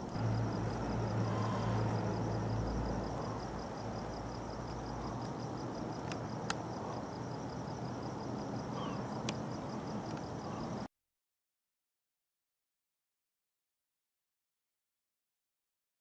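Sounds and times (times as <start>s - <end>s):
dull rumbling noise: 0.0s - 10.7s.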